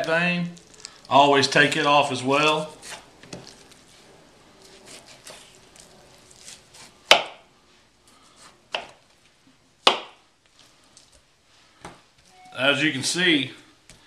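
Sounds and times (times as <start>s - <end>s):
knife slicing meat: 2.7s - 3.8s, 4.6s - 7.2s.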